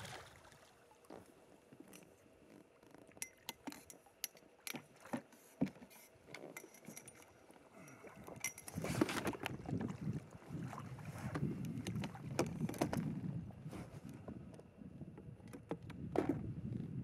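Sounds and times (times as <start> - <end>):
faint clicks and knocks: 1.1 - 9.6.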